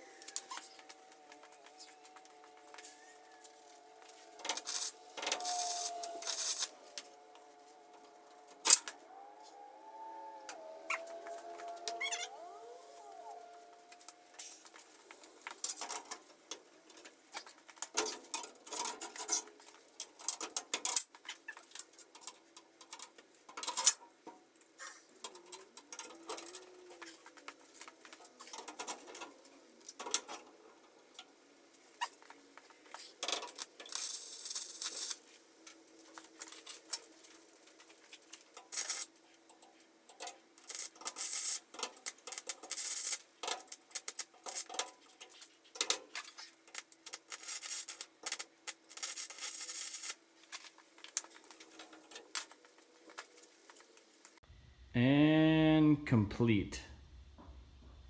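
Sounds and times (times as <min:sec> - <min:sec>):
stick welding arc crackling: 0:00.0 - 0:09.0, 0:31.1 - 0:54.4.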